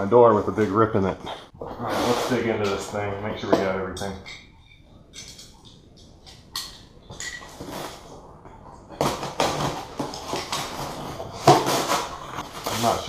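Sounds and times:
knife cutting cardboard box: 0:09.0 - 0:13.0
packing peanuts rustling: 0:09.2 - 0:13.0.

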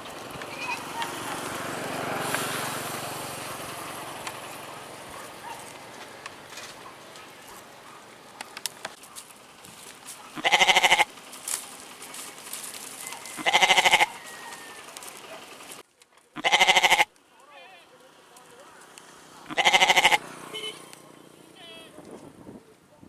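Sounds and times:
goats bleating: 0:10.4 - 0:11.1, 0:13.3 - 0:14.7, 0:16.4 - 0:17.8, 0:19.4 - 0:20.2.

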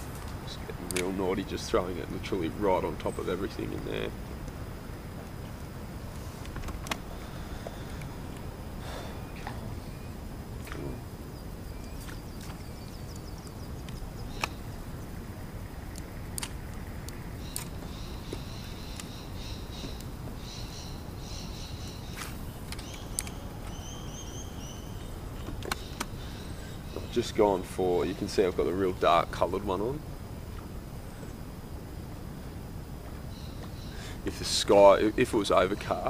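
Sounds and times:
birds chirping and trilling: 0:00.0 - 0:31.5, 0:33.2 - 0:36.0
low background rumble: 0:00.0 - 0:36.0
faint sharp clicks: 0:00.1 - 0:01.1, 0:12.0 - 0:14.7, 0:15.9 - 0:19.2, 0:21.9 - 0:23.8.

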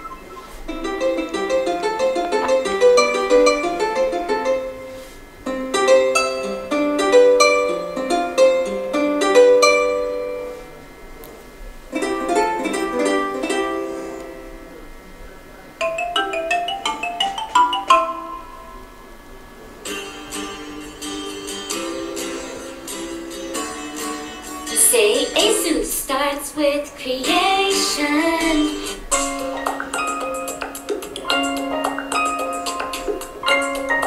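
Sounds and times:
plucked guitar ringtone melodies: 0:00.0 - 0:10.6, 0:11.9 - 0:14.8, 0:15.8 - 0:19.0, 0:19.8 - 0:25.6, 0:29.1 - 0:34.0
marimba ringtone tune: 0:15.8 - 0:19.0, 0:29.1 - 0:34.0.

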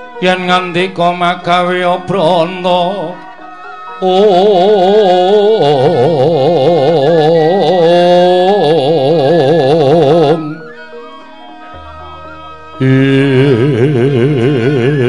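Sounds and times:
person singing with vibrato: 0:00.0 - 0:11.0, 0:12.6 - 0:15.0
gamelan music: 0:00.0 - 0:15.0.

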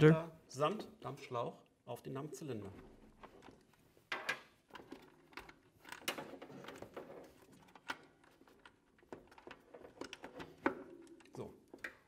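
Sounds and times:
plastic clicks and knocks: 0:03.2 - 0:12.0.

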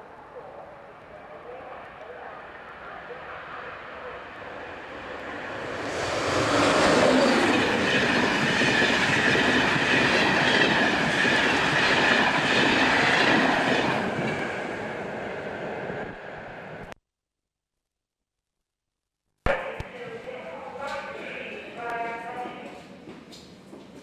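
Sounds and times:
train passing at speed: 0:00.9 - 0:16.8.

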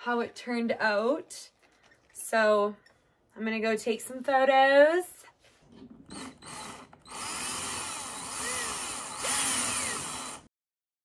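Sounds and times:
cordless drill boring plastic: 0:05.7 - 0:10.5.

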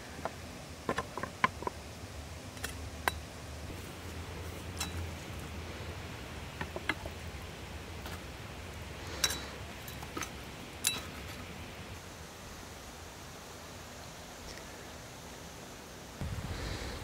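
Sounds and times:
metal skimmer clinking on pan: 0:09.2 - 0:11.2.

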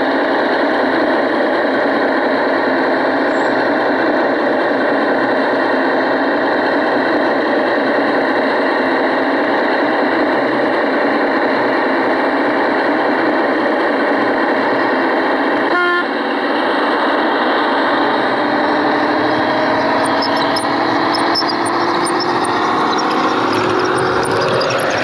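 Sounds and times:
model locomotive droning: 0:00.0 - 0:25.0
short horn toot: 0:15.7 - 0:16.1
rising whine: 0:16.3 - 0:25.0.

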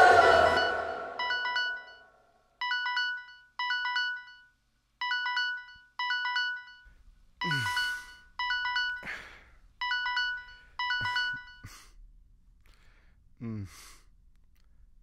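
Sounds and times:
phone ringtone chime: 0:00.0 - 0:11.7.

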